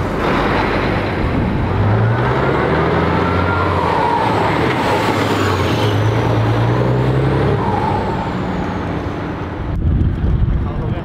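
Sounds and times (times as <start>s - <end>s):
truck diesel engine driving past: 0.0s - 9.8s.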